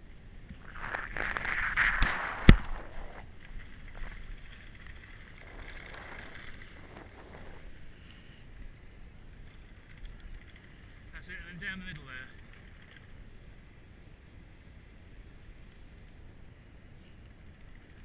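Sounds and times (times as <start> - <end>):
skis hissing over snow: 0.6 - 3.4.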